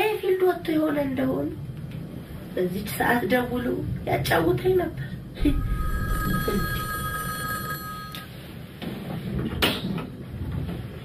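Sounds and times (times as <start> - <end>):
telephone two-tone ring: 5.5 - 8.3.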